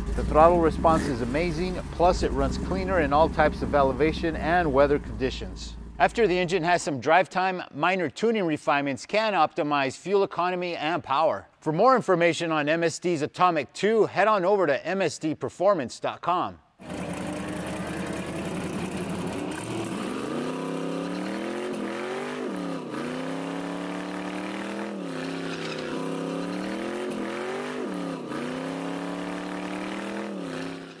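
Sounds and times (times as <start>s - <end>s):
car engine revving: 0.0s - 6.4s, 16.8s - 31.0s.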